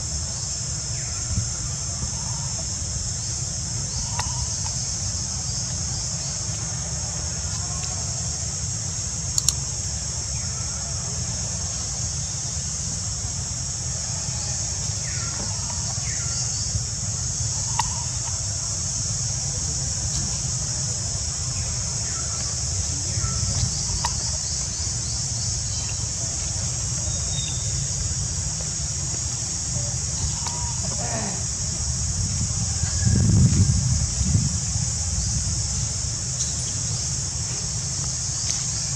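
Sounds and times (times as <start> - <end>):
insect chorus drone: 0.0 - 38.9
low steady rumble: 0.0 - 38.9
sharp clicks: 9.3 - 9.6.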